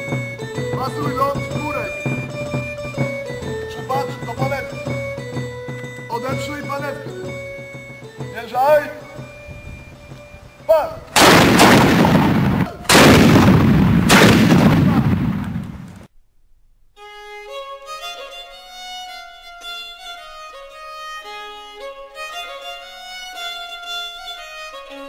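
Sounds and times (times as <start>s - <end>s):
instrument melody: 0.0s - 13.3s
musket shots: 11.2s - 16.1s.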